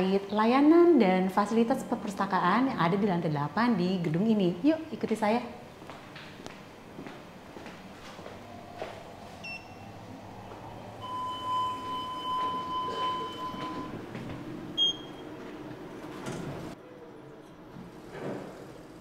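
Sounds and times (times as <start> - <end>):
steady lift beep: 9.4 - 15.4
lift chime: 10.7 - 14.0.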